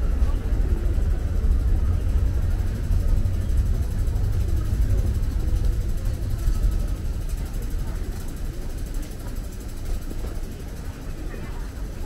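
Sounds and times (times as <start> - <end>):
deep rumble: 0.0 - 8.2
crowd noise: 0.0 - 12.0.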